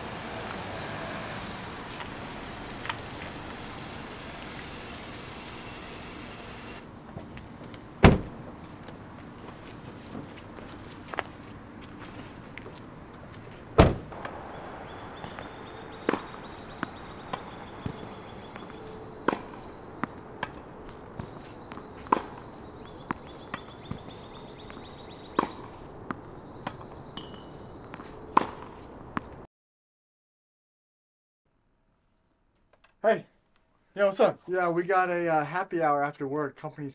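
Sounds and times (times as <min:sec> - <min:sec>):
car door slamming: 0:08.0 - 0:08.4, 0:13.8 - 0:14.4
tennis balls struck by racquets: 0:13.8 - 0:29.4.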